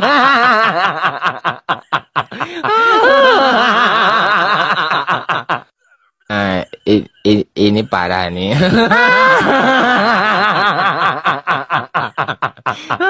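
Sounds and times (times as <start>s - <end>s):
person laughing: 0.0s - 5.7s, 8.5s - 13.0s.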